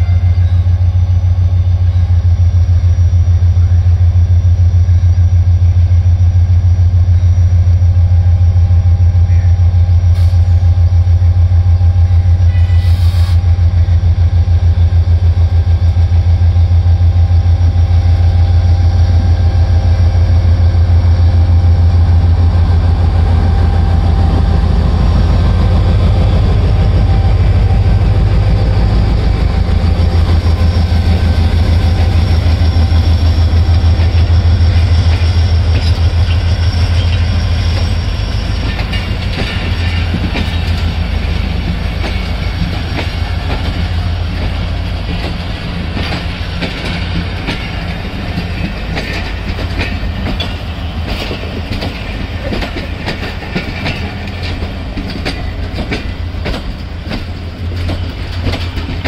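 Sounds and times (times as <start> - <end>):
diesel locomotive engine drone: 0.0 - 59.0.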